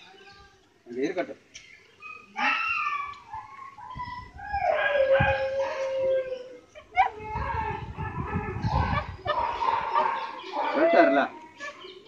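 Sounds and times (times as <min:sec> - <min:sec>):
dog whining howl: 0:02.2 - 0:10.1.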